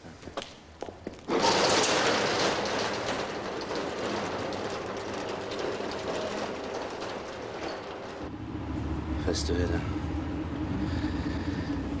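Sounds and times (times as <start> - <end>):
metal roller shutter rattling: 1.2 - 8.5.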